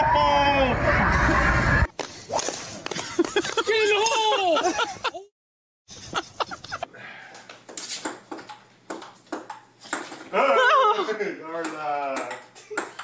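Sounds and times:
table tennis ball clicking: 0:08.0 - 0:10.0.

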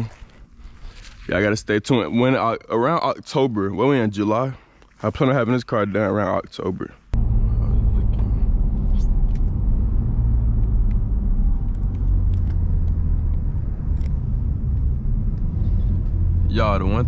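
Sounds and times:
engine low rumble: 0:07.1 - 0:17.0
tyres on road: 0:07.1 - 0:17.0.

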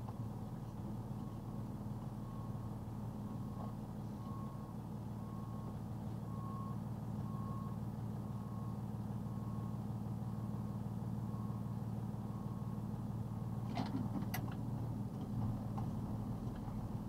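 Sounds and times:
truck engine humming: 0:00.0 - 0:17.0
reverse alarm beeping: 0:02.2 - 0:07.8.

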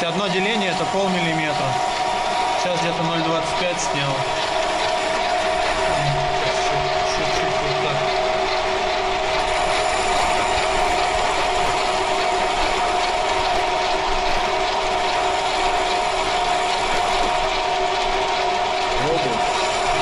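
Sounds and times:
lathe gear whine: 0:00.0 - 0:20.0
mechanical rattle: 0:00.4 - 0:20.0.

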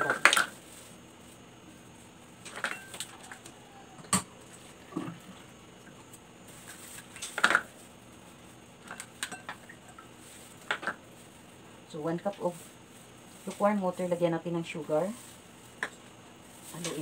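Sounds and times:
plastic cups knocking and clicking: 0:07.2 - 0:07.7, 0:10.6 - 0:11.0.

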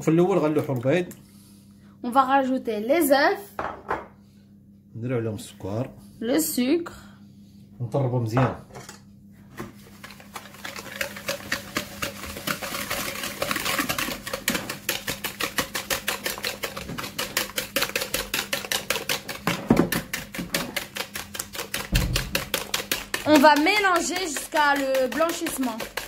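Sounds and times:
knock on bowl: 0:03.6 - 0:04.1, 0:21.9 - 0:22.5
whisk clicking in plastic bowl: 0:09.9 - 0:26.0.

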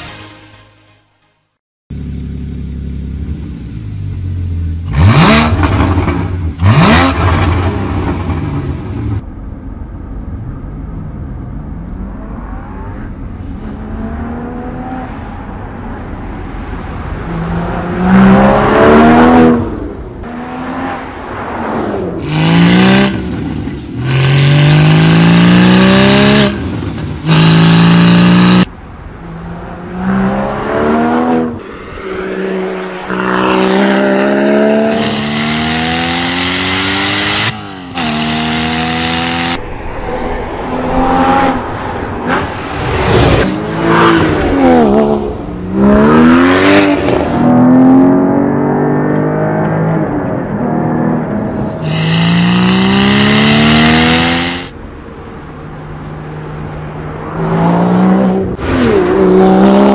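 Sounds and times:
car engine revving: 0:02.0 - 0:09.2, 0:17.2 - 0:28.7, 0:29.8 - 0:54.8, 0:56.8 - 0:59.9.

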